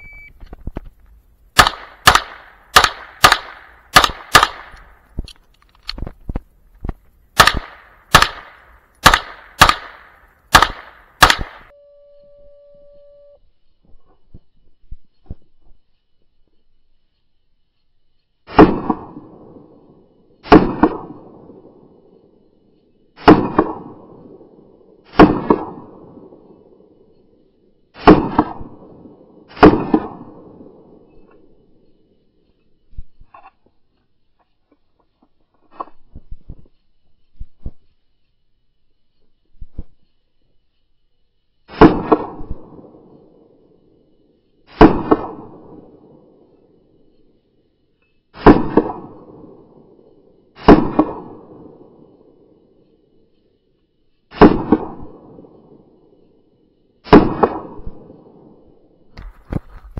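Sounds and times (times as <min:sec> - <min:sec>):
small clicks: 0:00.0 - 0:11.7, 0:31.1 - 0:41.6
handgun shots: 0:01.6 - 0:04.9, 0:07.4 - 0:11.7
pistol shots with echo: 0:01.6 - 0:04.9, 0:07.4 - 0:11.7, 0:18.5 - 0:19.2, 0:20.4 - 0:21.2, 0:23.2 - 0:24.2, 0:25.1 - 0:26.3, 0:28.0 - 0:28.8, 0:29.5 - 0:30.5, 0:48.4 - 0:49.3, 0:50.6 - 0:51.5, 0:57.1 - 0:57.8.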